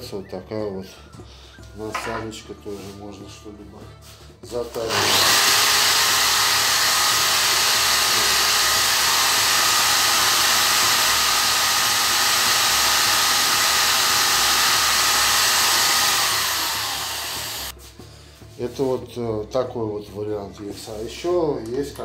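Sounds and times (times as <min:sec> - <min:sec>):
angle grinder whining: 0:04.7 - 0:17.7.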